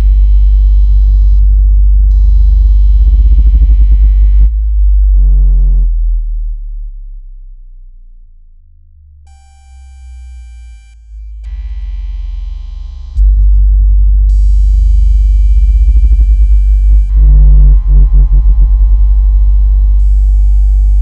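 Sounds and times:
pulsing deep bass tone: 0.0 - 21.0
synthesized tone chord: 15.6 - 21.0.

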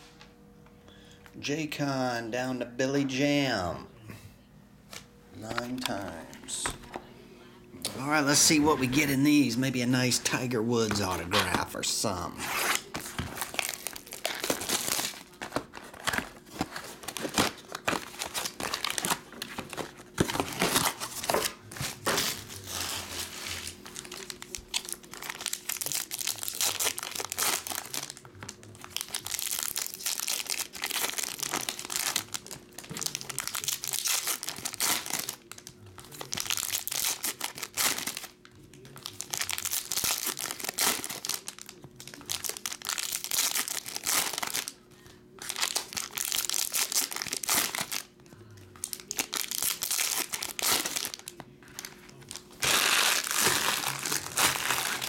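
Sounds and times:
foil packs tearing and crinkling: 8.0 - 44.8, 45.4 - 48.1, 48.8 - 55.0.

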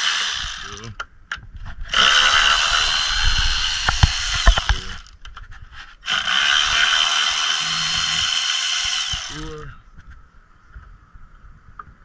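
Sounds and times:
electric ratchet whine: 0.0 - 0.9, 1.9 - 5.1, 6.0 - 9.6
sharp knocks: 3.8 - 5.0.

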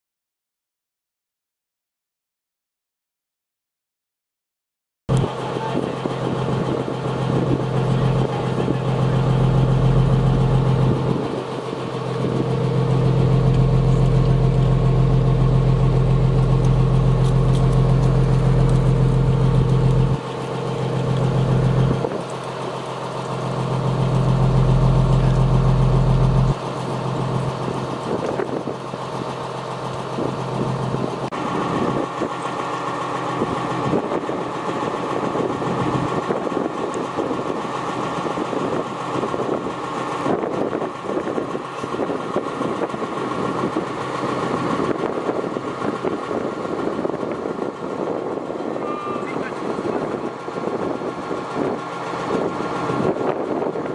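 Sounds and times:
truck engine running: 5.1 - 53.9
fire engine horn blasts: 48.6 - 50.2.

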